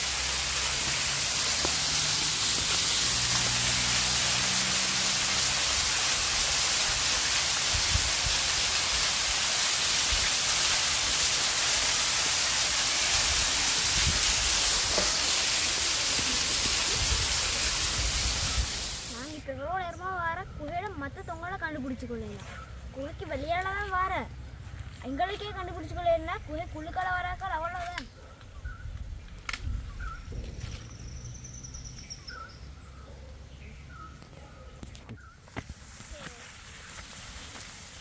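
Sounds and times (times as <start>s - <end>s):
small waterfall rushing: 0.0s - 19.4s.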